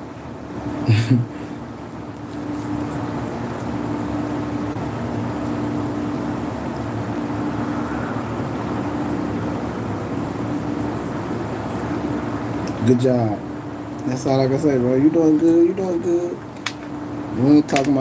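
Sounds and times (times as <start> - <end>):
mechanical hum and rushing: 0.0 - 18.0.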